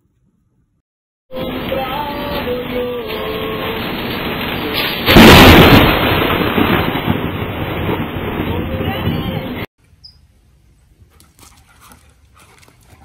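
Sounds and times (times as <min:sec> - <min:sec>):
thunderclap rumbling: 0:01.4 - 0:09.7.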